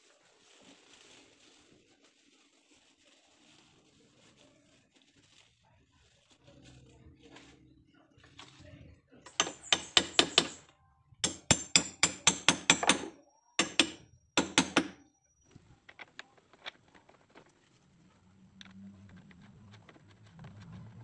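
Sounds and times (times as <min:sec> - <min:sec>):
hammer striking metal: 0:09.3 - 0:10.6, 0:11.2 - 0:15.0.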